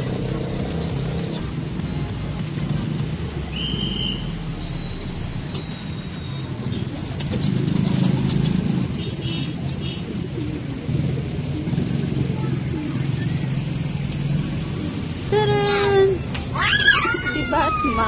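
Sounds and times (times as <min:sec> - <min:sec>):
pigeons cooing: 0:00.0 - 0:16.2
thin high whistle: 0:03.5 - 0:06.4.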